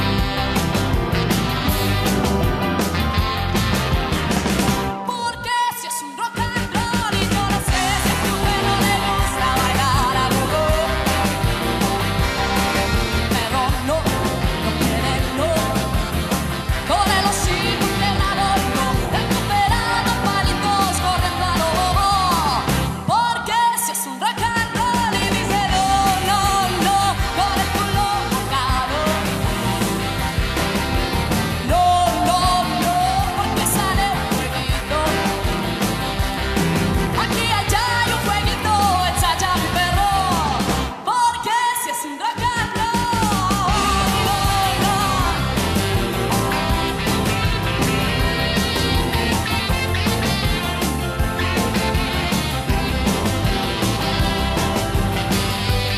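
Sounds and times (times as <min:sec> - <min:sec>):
electric guitar: 0:00.0 - 0:55.9
pop-rock band playing: 0:00.0 - 0:55.9
woman singing: 0:05.1 - 0:11.9, 0:13.1 - 0:29.8, 0:31.6 - 0:35.8, 0:37.1 - 0:47.4.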